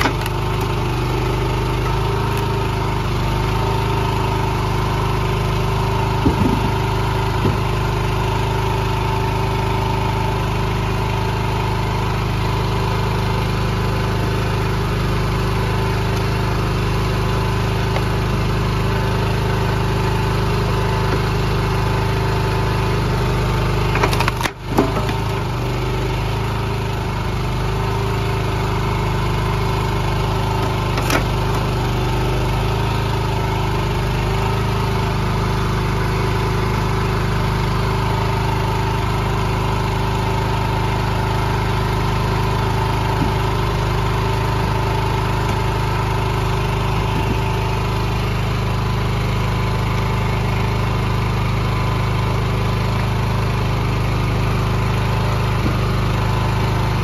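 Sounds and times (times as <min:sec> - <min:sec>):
wood splitting knocks: 0:00.0 - 0:01.2, 0:06.1 - 0:07.9, 0:23.8 - 0:25.7, 0:30.5 - 0:31.7, 0:43.0 - 0:43.8, 0:47.0 - 0:47.7
small gas engine running: 0:00.0 - 0:57.0.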